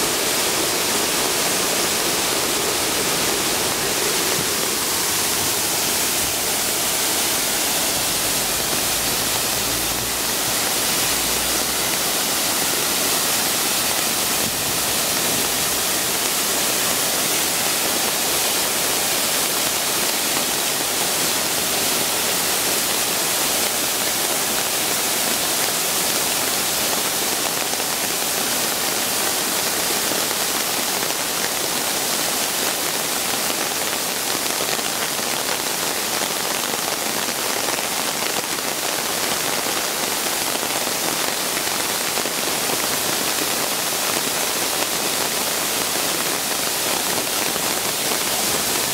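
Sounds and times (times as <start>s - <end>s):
water rushing down waterfall: 0.0s - 48.9s.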